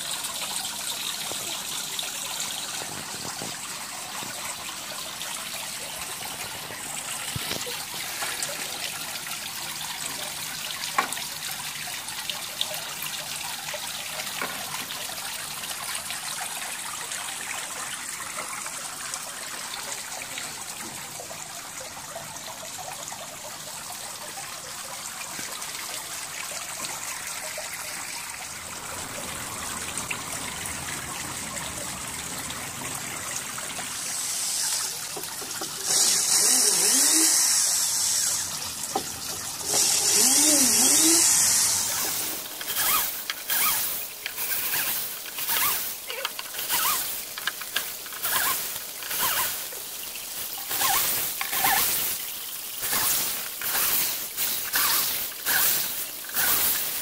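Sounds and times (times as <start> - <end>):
fountain water trickling: 0.0 - 57.0.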